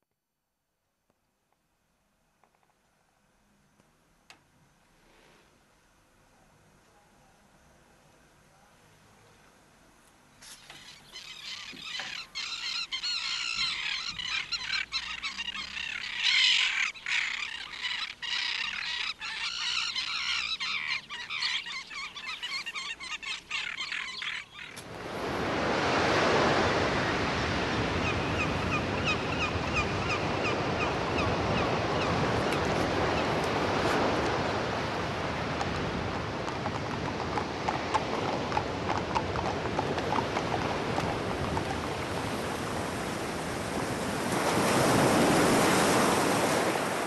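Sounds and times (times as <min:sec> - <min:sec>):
flock of birds calling: 0:10.4 - 0:24.8, 0:28.0 - 0:35.4.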